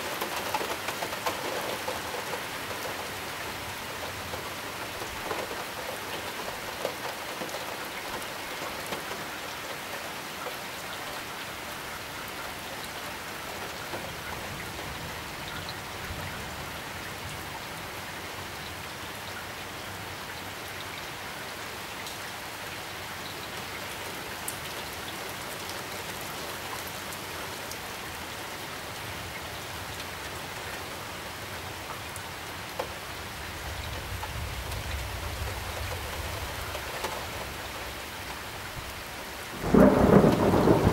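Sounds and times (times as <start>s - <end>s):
rain drop ticks: 0.0s - 11.3s, 31.8s - 38.0s, 38.8s - 40.9s
heavy rain hissing: 24.0s - 40.9s.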